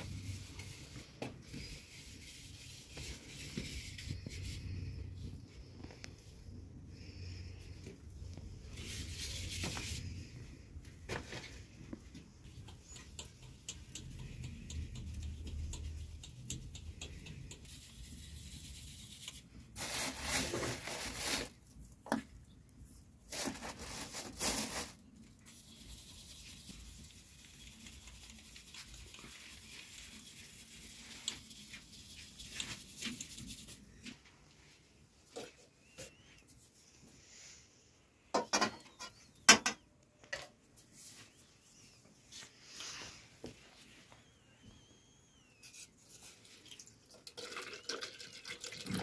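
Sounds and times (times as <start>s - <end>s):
flour rustling through a sieve: 0.0s - 5.3s, 8.4s - 11.8s, 17.6s - 21.8s, 23.2s - 34.1s.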